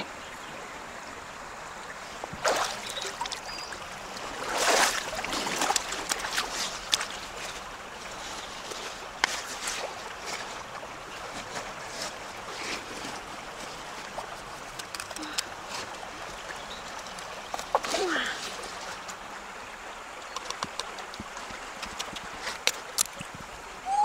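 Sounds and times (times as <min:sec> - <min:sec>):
river water splashing: 0:00.0 - 0:24.0.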